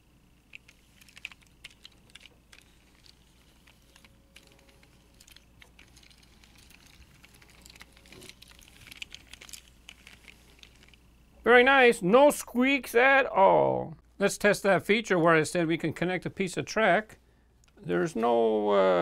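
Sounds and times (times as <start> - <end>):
toy wheels rolling on carpet: 0.5 - 11.0.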